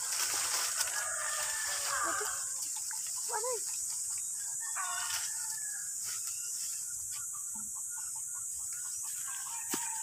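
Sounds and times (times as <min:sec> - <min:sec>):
steady high-pitched hiss: 0:00.0 - 0:10.0
chicken clucking: 0:06.9 - 0:10.0.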